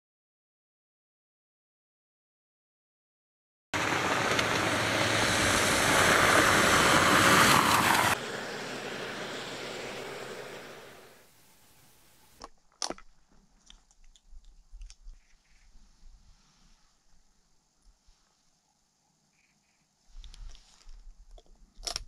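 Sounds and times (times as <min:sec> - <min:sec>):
car driving on dirt road: 0:03.8 - 0:12.4.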